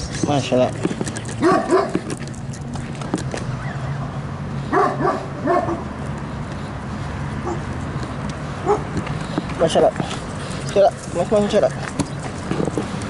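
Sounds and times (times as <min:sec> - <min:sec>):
dog barking: 0:01.4 - 0:02.0, 0:04.7 - 0:05.9, 0:07.4 - 0:07.7, 0:08.6 - 0:08.9.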